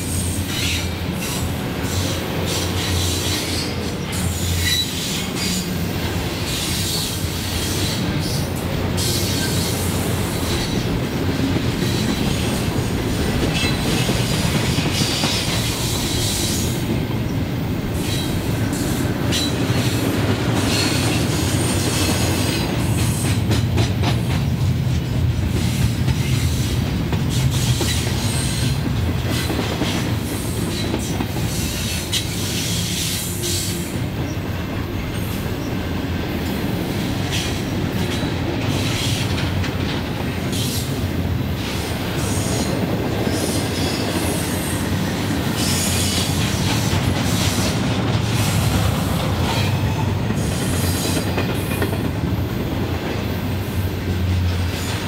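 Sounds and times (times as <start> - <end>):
train wheels rumbling on rail: 0.0 - 55.0
clicking rail joints: 37.2 - 41.0.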